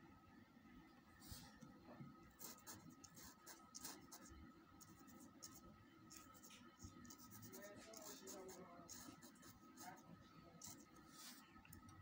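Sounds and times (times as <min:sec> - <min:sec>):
pencil scratching on paper: 0:02.4 - 0:10.0, 0:10.6 - 0:11.4.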